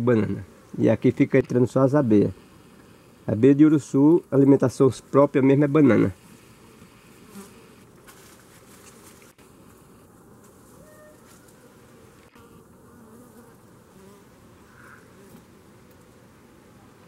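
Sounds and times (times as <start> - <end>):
faint buzzing of bees and flies: 0.0 - 17.0
insects humming as they fly close: 0.0 - 17.0.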